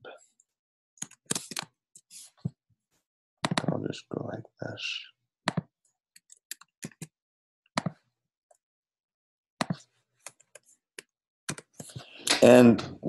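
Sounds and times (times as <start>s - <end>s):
mouse and keyboard clicks: 1.0s - 1.7s, 5.5s - 7.1s, 9.6s - 12.4s.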